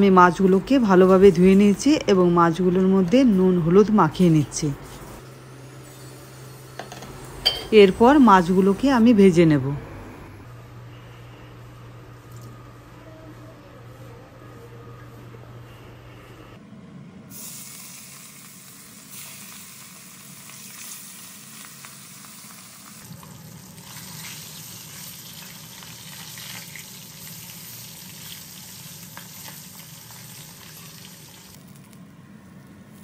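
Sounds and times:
fish sizzling in hot oil: 17.3s - 31.6s.

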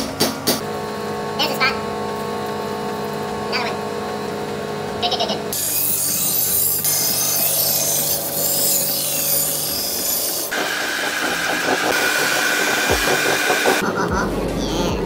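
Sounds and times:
low motor hum: 0.6s - 15.0s
belt grinder grinding steel: 5.5s - 13.8s.

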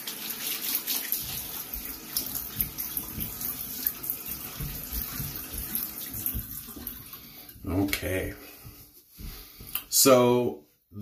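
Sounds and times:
splashing while rinsing: 0.0s - 7.6s
tap water running into sink: 0.0s - 7.7s.

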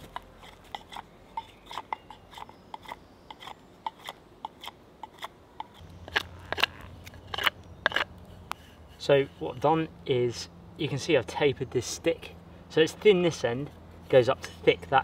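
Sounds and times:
knife scraping wooden stick: 0.0s - 9.7s.

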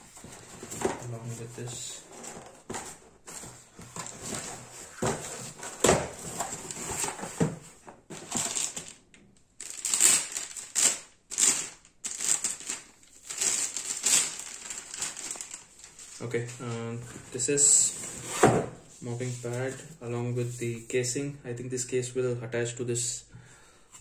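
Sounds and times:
cardboard scraping and rustling: 0.0s - 8.9s, 17.1s - 19.9s.

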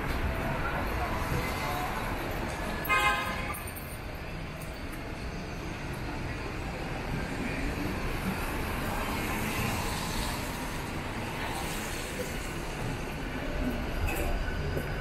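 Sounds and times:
traffic on a wet street: 5.9s - 13.8s.

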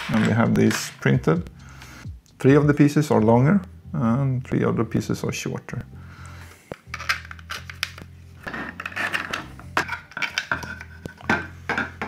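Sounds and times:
plastic parts clicking and scraping: 6.7s - 12.0s.

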